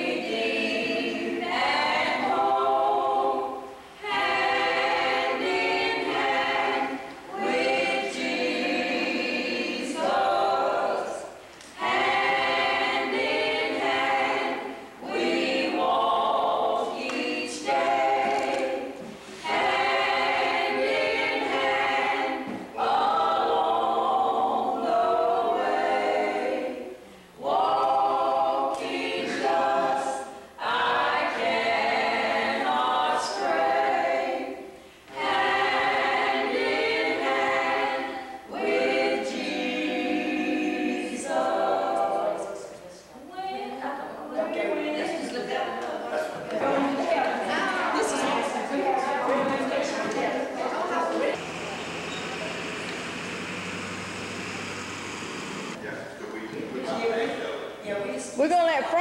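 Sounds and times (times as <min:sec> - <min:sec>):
group singing unaccompanied: 0:00.0 - 0:54.9.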